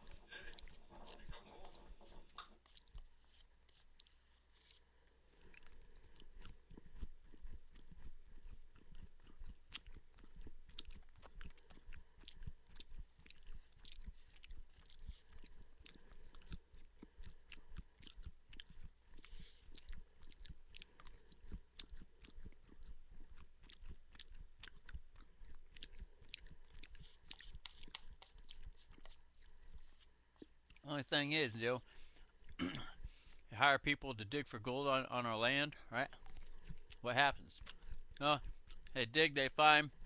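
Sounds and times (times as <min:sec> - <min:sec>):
person chewing food: 0:00.0 - 0:30.9, 0:31.5 - 0:33.5, 0:35.4 - 0:40.0.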